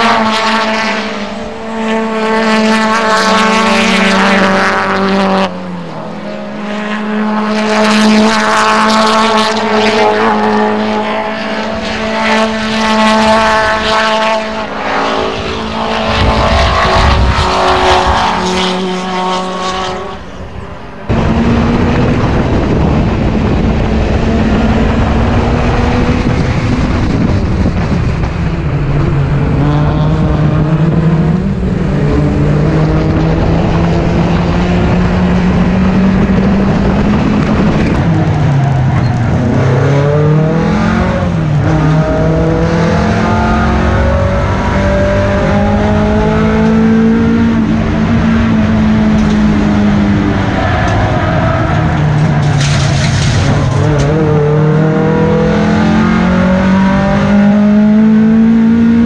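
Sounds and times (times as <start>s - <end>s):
racing car engines: 0.0s - 59.0s
heavy low rumble: 20.2s - 43.0s.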